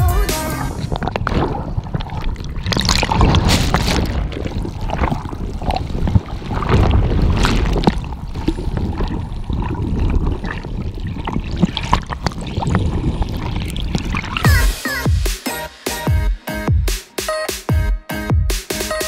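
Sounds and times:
underwater surf churning: 0:00.7 - 0:14.6.

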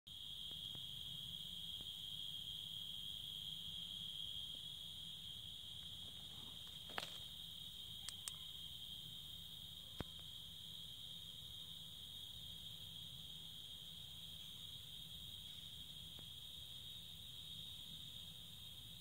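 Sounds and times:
night insects trilling: 0:00.1 - 0:19.0
faint ticks: 0:08.0 - 0:08.5.

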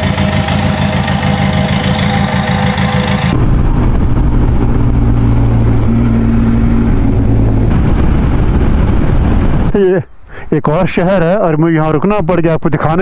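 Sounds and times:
motorcycle engine: 0:00.0 - 0:09.7
wind and road noise: 0:00.0 - 0:13.0.

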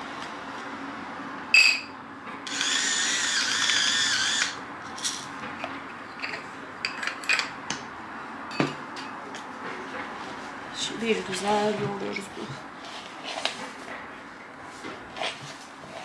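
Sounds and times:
electric pepper mill whirring: 0:02.4 - 0:04.6.

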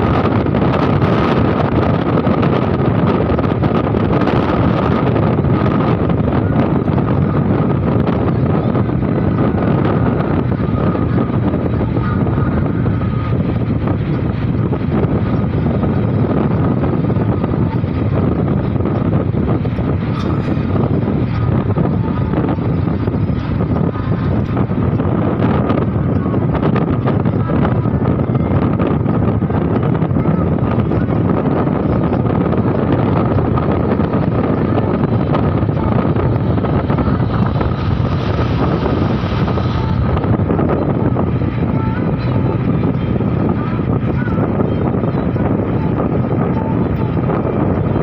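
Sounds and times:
road noise inside vehicle: 0:00.0 - 0:48.0
wind on microphone: 0:00.0 - 0:48.0.

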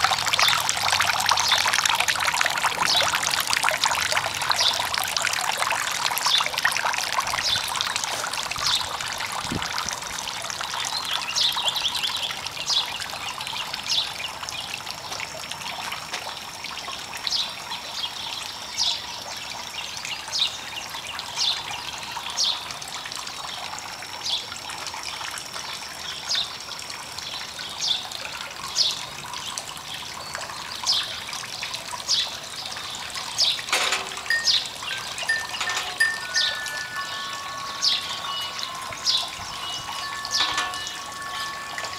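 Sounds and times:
fountain water splashing: 0:00.0 - 0:41.9
bird chirping: 0:32.9 - 0:41.9.

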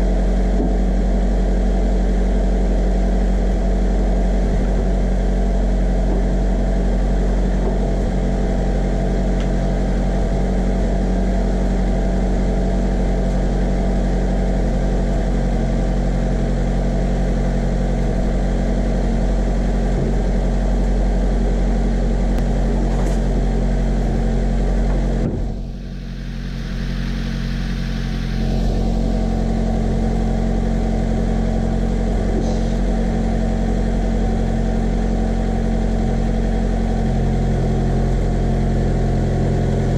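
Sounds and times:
truck engine idling: 0:00.0 - 0:39.9
rush of noise: 0:22.2 - 0:33.2.

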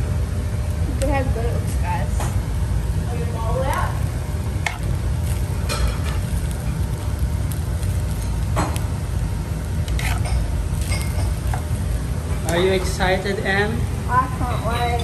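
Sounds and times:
steady low rumble: 0:00.0 - 0:15.0
metal spoon scraping frying pan: 0:09.9 - 0:11.6.

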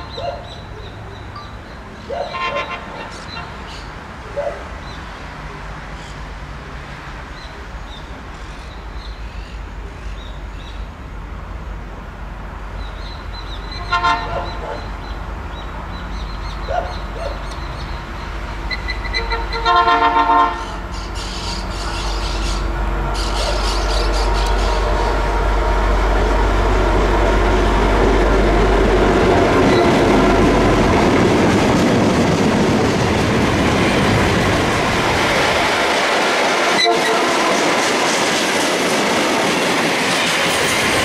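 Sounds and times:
diesel locomotive and train rumble: 0:00.0 - 0:41.0
train horn: 0:02.3 - 0:03.6, 0:13.7 - 0:14.8, 0:19.0 - 0:20.9, 0:23.1 - 0:27.7, 0:29.5 - 0:30.5, 0:36.7 - 0:37.8.

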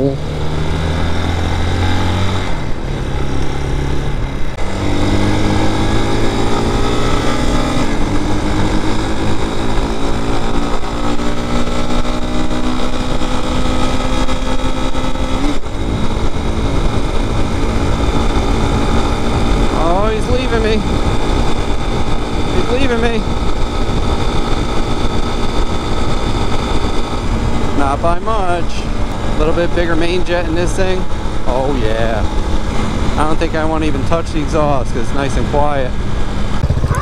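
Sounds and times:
wind rush on microphone: 0:04.1 - 0:31.5
motorcycle engine pulling: 0:04.6 - 0:37.0.

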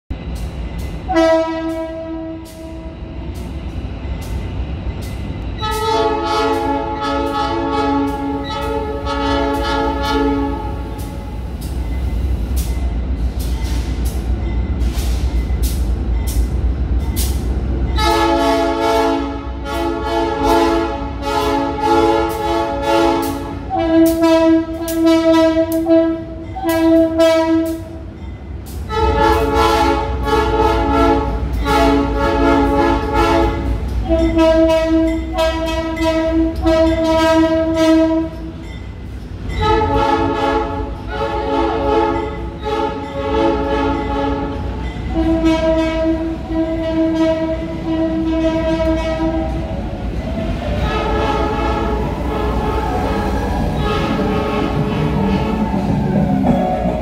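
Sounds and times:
diesel locomotive engine rumble: 0:00.1 - 0:57.0
train air horn blasts: 0:01.1 - 0:03.0, 0:05.6 - 0:11.1, 0:18.0 - 0:28.0, 0:28.9 - 0:38.5, 0:39.5 - 0:49.6, 0:50.8 - 0:54.9.

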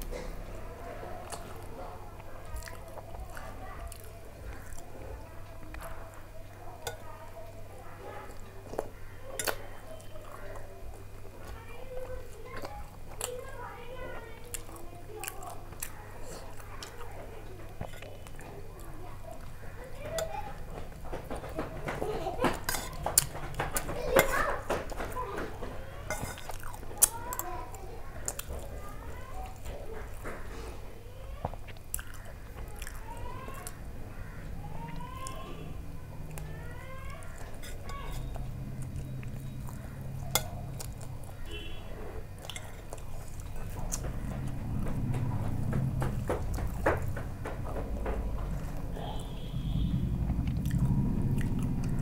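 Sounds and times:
chewing flatbread: 0:00.0 - 0:52.0
spoon clinking steel bowl: 0:26.1 - 0:26.5
spoon scraping steel bowl: 0:26.1 - 0:26.6, 0:37.5 - 0:38.3
low steady hum: 0:30.8 - 0:52.0.

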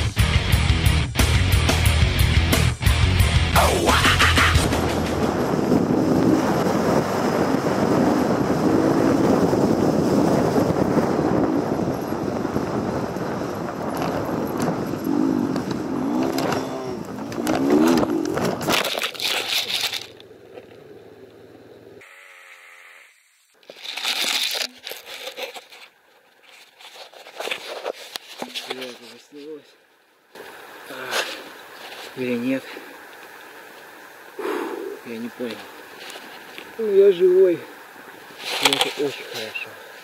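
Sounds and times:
motorcycle engine revving: 0:13.9 - 0:18.7
motorcycle crashing: 0:13.9 - 0:20.8
scraping and rustling in brush: 0:14.0 - 0:20.2, 0:23.6 - 0:29.6, 0:31.0 - 0:32.4, 0:35.4 - 0:36.8, 0:38.2 - 0:39.6.

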